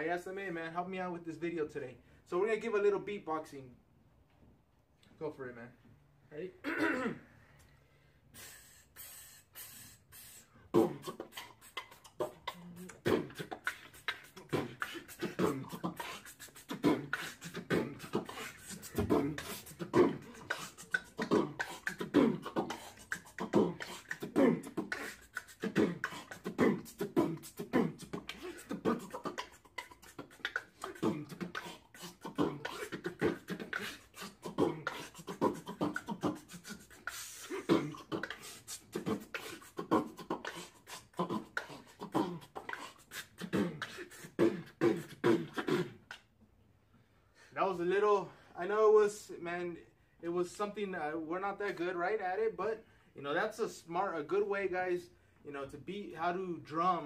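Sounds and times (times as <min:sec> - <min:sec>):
people beatboxing: 0:08.3 - 0:46.3.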